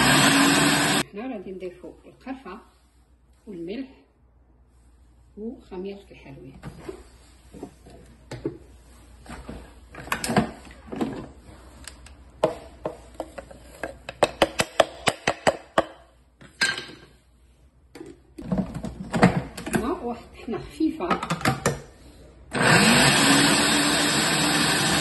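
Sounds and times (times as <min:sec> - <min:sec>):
kitchenware knocking and clattering: 0:14.2 - 0:17.2, 0:21.0 - 0:21.9.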